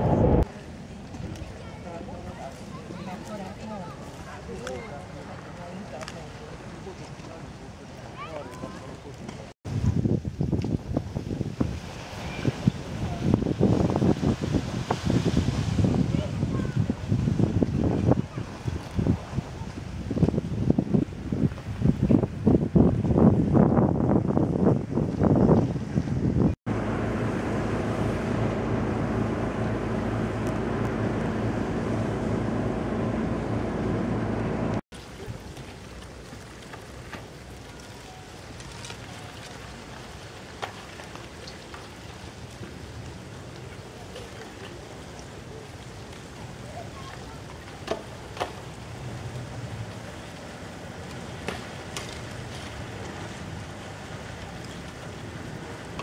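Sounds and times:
steady rush: 0:00.0 - 0:00.5, 0:26.7 - 0:34.8
wind noise on microphone: 0:00.0 - 0:01.5, 0:09.6 - 0:34.8
propeller churning water: 0:00.0 - 0:56.0
boat diesel engine humming: 0:26.7 - 0:34.8.

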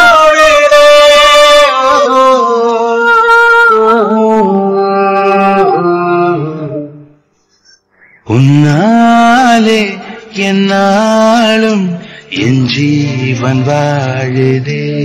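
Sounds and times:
person singing long wordless notes: 0:00.0 - 0:07.3, 0:08.2 - 0:15.0.

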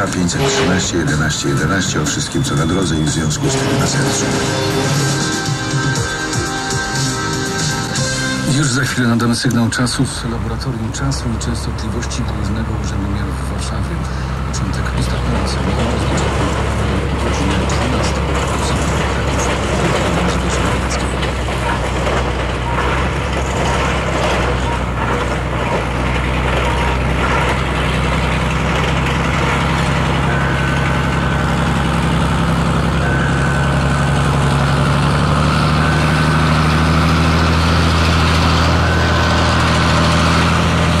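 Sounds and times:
diesel locomotive engine: 0:00.0 - 0:41.0
freight train rumbling: 0:00.0 - 0:41.0
short high beep: 0:00.4 - 0:06.1, 0:30.2 - 0:40.8.

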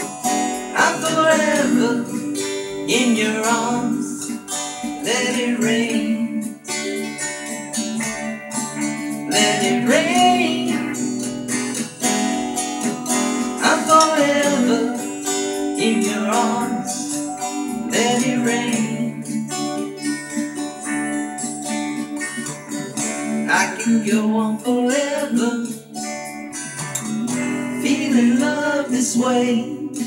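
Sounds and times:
gliding melody line: 0:00.0 - 0:23.4
strummed acoustic guitar: 0:00.0 - 0:30.0.

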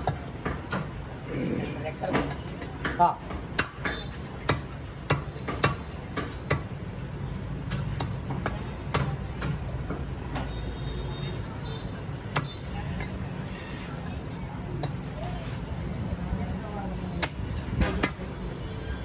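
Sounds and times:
cleaver chopping on wooden block: 0:02.8 - 0:06.7.

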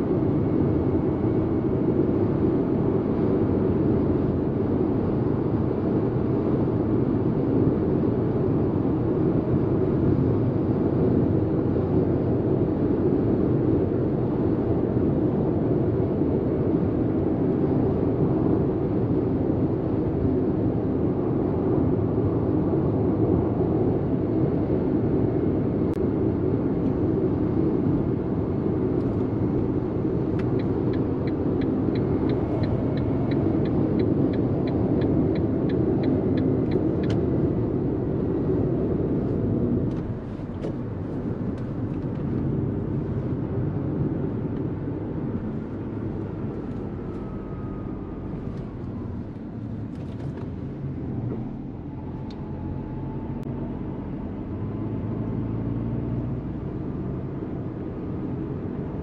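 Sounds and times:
car engine and road noise: 0:00.0 - 0:59.0
turn signal ticking: 0:29.0 - 0:37.3.

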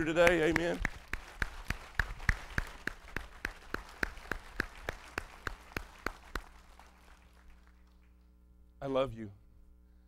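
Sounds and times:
sharp even hand claps: 0:00.0 - 0:08.2
congregation applauding: 0:00.0 - 0:08.3.

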